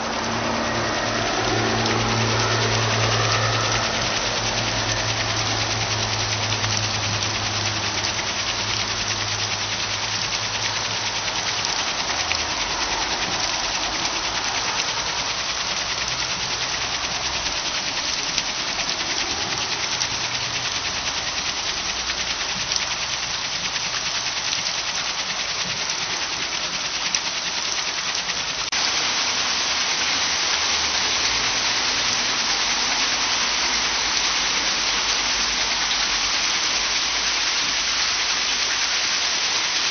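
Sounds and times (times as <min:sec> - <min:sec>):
low hum: 0:00.0 - 0:09.4
water rushing over waterwheel: 0:00.0 - 0:39.9.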